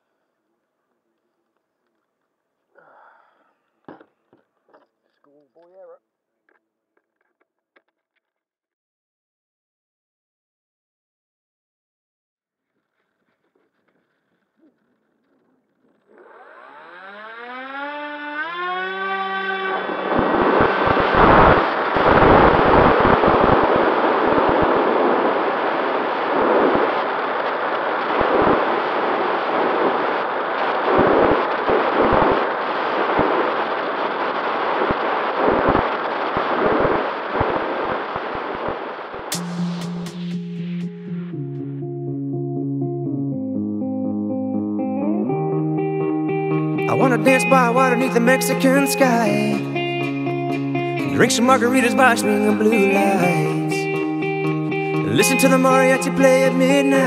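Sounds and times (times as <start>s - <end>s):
electric motor whine: 16.2s - 22.8s.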